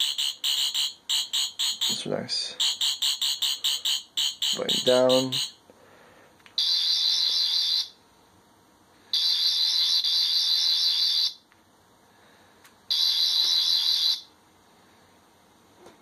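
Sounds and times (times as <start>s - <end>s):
high-pitched electronic buzz: 0.0s - 5.6s.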